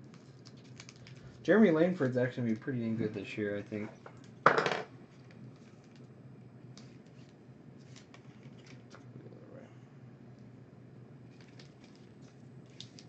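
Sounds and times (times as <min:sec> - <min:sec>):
plastic and foil rustling: 0:00.0 - 0:03.0, 0:11.3 - 0:13.0
low steady hum: 0:00.0 - 0:13.0.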